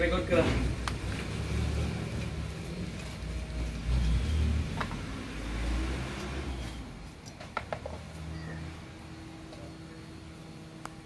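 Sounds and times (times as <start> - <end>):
passing vehicle engine rumble: 0.0 - 7.2.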